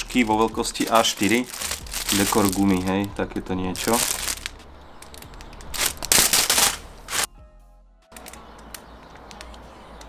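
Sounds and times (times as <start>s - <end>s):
plastic packaging rustling: 0.0s - 7.3s.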